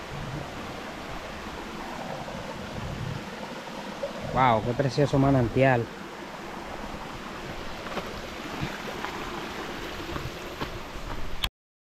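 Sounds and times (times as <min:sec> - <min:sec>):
stream running over stones: 0:00.0 - 0:11.5.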